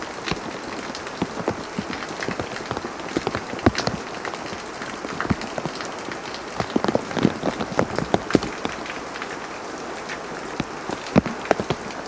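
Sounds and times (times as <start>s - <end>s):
raindrops tapping nearby: 0.0s - 12.0s
steady hiss of rain: 0.0s - 12.0s.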